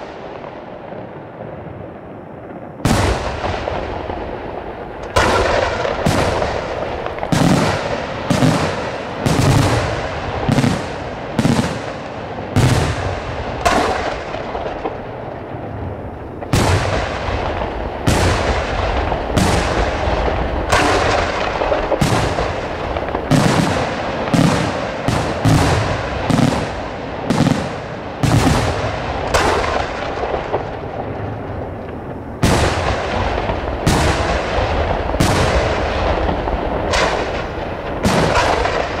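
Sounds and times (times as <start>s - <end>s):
continuous rumble and crackle: 0.0s - 39.0s
firework shells bursting: 31.7s - 39.0s.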